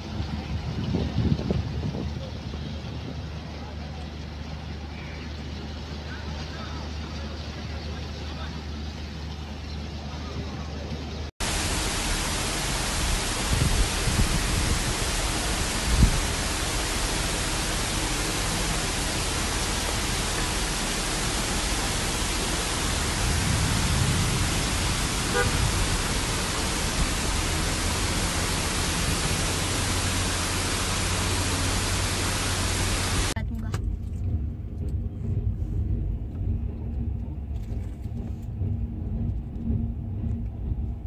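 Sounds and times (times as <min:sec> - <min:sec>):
heavy rain: 0:11.4 - 0:33.4.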